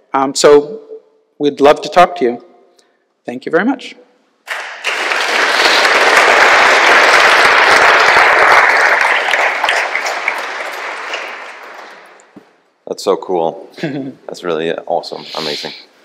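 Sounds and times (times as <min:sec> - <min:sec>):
audience applauding: 0:04.5 - 0:12.4.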